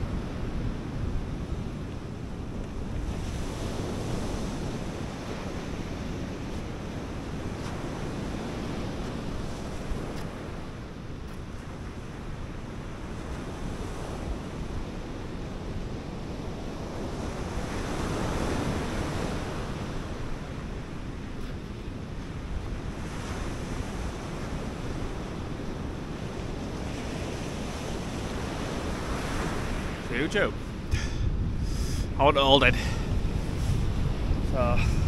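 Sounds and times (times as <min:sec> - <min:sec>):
wind buffeting microphone: 0:00.0 - 0:35.0
surf breaking on sand beach: 0:13.1 - 0:35.0.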